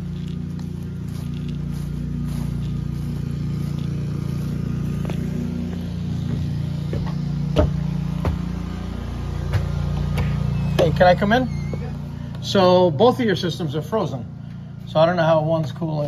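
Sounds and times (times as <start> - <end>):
footsteps on wooden steps: 0.0 - 11.0
footsteps on grass: 0.0 - 16.0
low machine hum: 0.0 - 16.0
thumps on wooden boards: 6.2 - 8.5.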